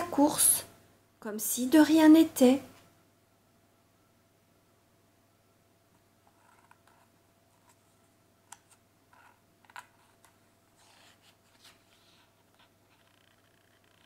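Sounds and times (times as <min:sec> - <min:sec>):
paper rustling of book pages: 0:08.6 - 0:14.0.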